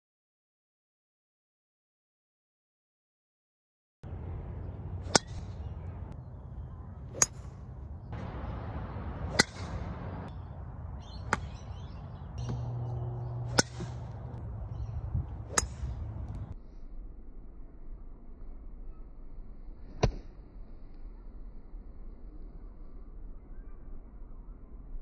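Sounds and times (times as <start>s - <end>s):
low outdoor background: 4.0s - 25.0s
golf club striking ball: 5.0s - 5.6s, 7.1s - 7.6s, 9.2s - 10.3s, 11.0s - 14.4s, 15.2s - 16.6s.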